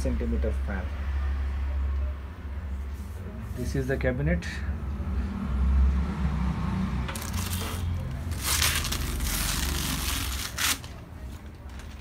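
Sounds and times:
plastic bag crinkling: 7.2s - 12.0s.

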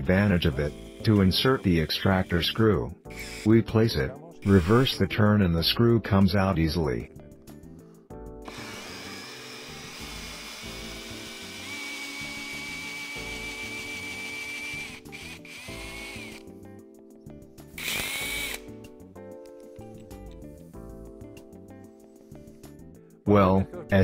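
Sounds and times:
background music: 0.0s - 24.0s
cordless drill motor whine: 0.7s - 1.6s, 3.1s - 3.5s, 8.5s - 16.5s, 17.8s - 18.7s
drill clicks: 3.1s - 3.5s, 8.5s - 16.5s, 17.8s - 18.7s.

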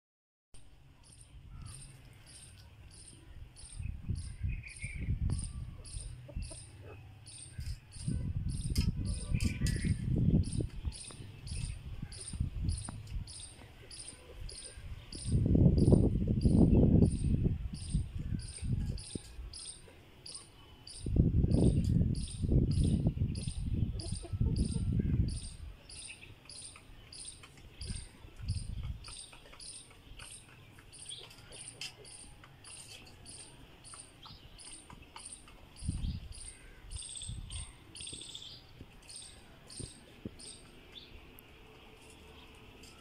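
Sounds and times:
hens scuffling in dry dirt: 38.6s - 43.0s.

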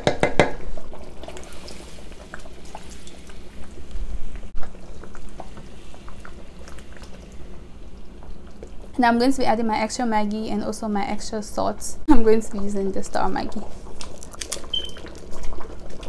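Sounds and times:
thick soup simmering in a pot: 0.0s - 11.1s, 12.7s - 16.0s
small bubbling pops: 13.8s - 16.0s.

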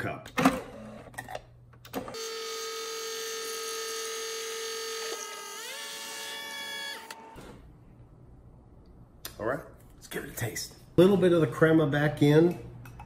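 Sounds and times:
coffee machine motor whine: 2.0s - 7.5s.

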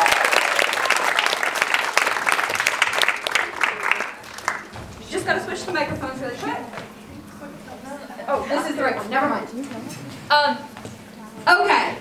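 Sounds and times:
audience applauding: 0.0s - 4.8s.

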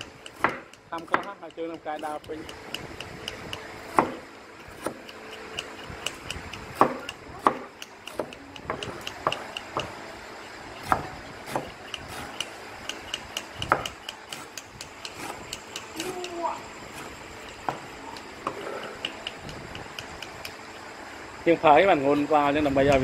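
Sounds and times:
faint high ticking: 0.0s - 10.0s, 11.8s - 20.7s
sharp knocks on wood: 0.4s - 1.3s, 4.0s - 4.2s, 6.0s - 10.0s, 13.2s - 16.1s.

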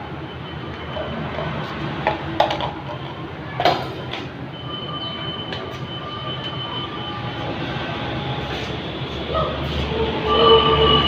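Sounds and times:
thin high whine: 4.7s - 11.0s.

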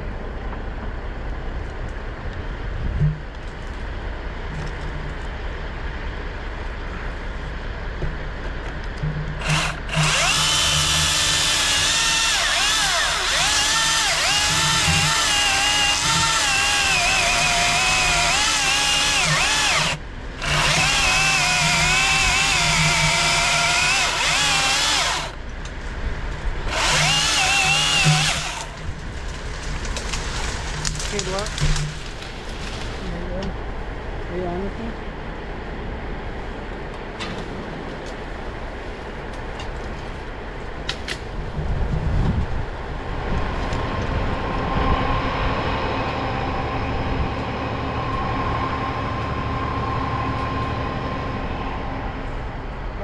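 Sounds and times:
steady low hum: 0.0s - 53.0s
electric chainsaw cutting wood: 9.4s - 25.4s, 26.7s - 29.0s.

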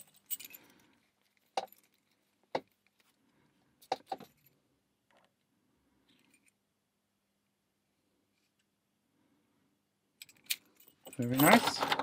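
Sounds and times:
keys and metal jingling: 0.0s - 2.4s, 10.2s - 12.0s.

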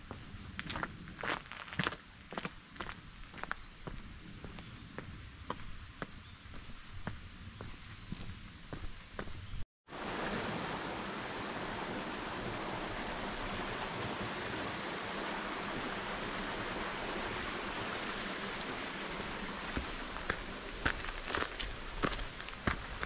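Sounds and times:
footsteps on forest litter: 0.6s - 4.6s, 19.7s - 23.0s.

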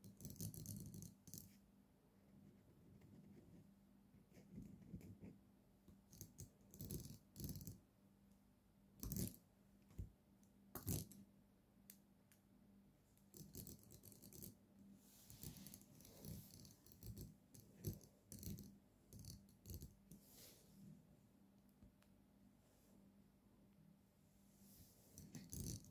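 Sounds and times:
faint steady hum: 0.0s - 25.9s.

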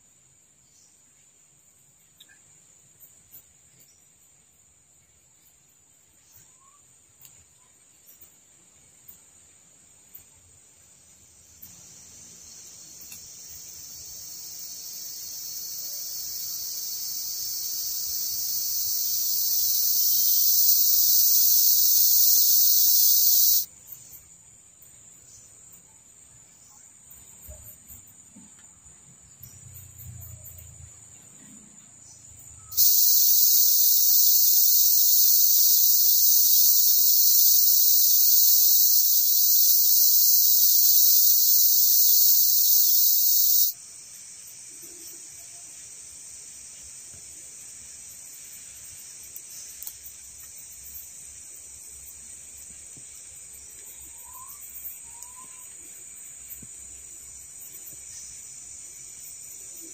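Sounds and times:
high insect trill: 10.1s - 59.9s
loud high insect buzz: 12.4s - 23.7s, 32.7s - 43.8s.

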